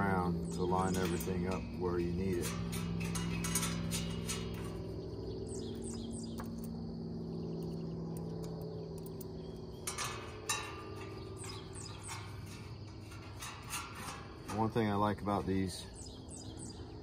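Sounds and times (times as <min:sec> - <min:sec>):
steady low hum: 0:00.0 - 0:17.0
metal parts clicking and tapping: 0:00.5 - 0:04.9, 0:07.6 - 0:14.9.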